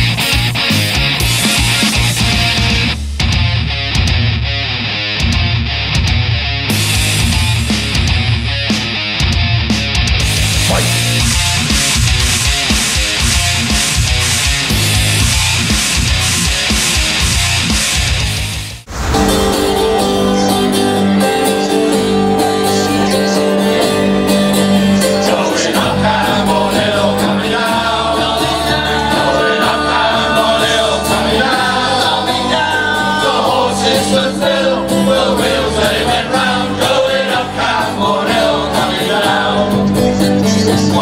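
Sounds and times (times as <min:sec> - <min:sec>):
instrumental backing: 0:00.0 - 0:41.0
low held notes: 0:10.4 - 0:12.3, 0:18.8 - 0:25.2
group singing: 0:10.6 - 0:11.4, 0:18.9 - 0:41.0.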